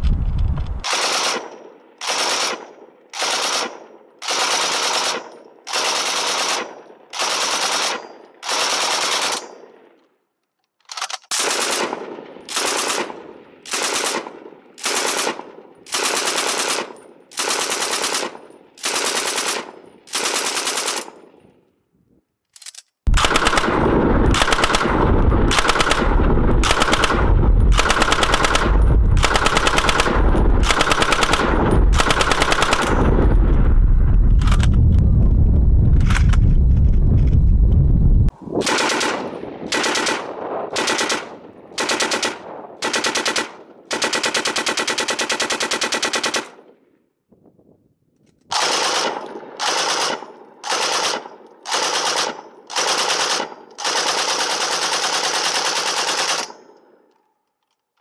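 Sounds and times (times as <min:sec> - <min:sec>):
machine gun firing bursts: 0:00.8 - 0:09.4, 0:11.3 - 0:21.2, 0:23.1 - 0:33.7, 0:38.6 - 0:46.7, 0:48.5 - 0:56.5.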